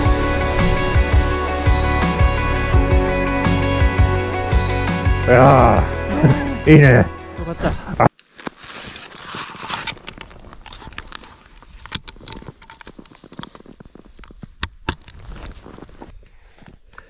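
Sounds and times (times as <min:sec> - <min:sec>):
crackling and rustling: 0:08.1 - 0:17.0
climbing skins rasping: 0:08.2 - 0:17.0.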